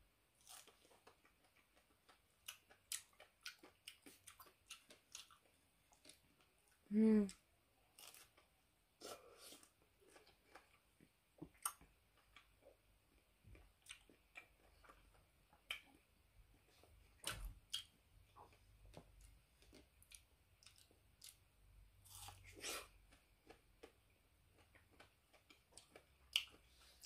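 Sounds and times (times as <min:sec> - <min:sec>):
chewing with wet mouth clicks: 0:00.7 - 0:06.5, 0:13.5 - 0:16.0, 0:18.5 - 0:21.4, 0:24.6 - 0:26.6.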